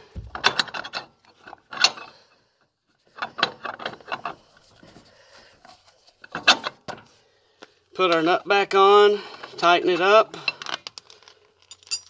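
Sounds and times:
metal bolt scraping and clinking: 0.2 - 2.4, 3.0 - 4.8, 6.2 - 7.1, 9.3 - 12.0.

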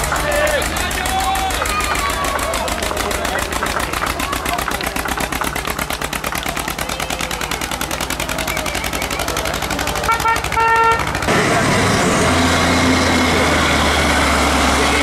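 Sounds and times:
tractor diesel engine running: 0.0 - 15.0
horn-like tone: 10.0 - 11.1.

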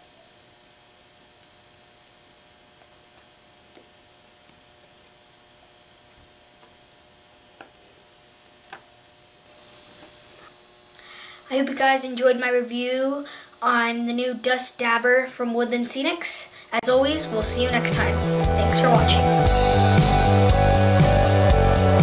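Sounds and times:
electrical hum and hiss: 0.0 - 22.0.

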